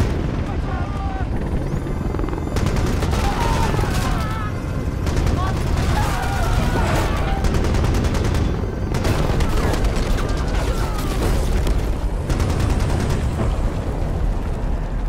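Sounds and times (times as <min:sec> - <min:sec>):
rounds exploding: 0:00.0 - 0:01.3, 0:02.6 - 0:13.9
heavy automatic gunfire: 0:02.5 - 0:13.5.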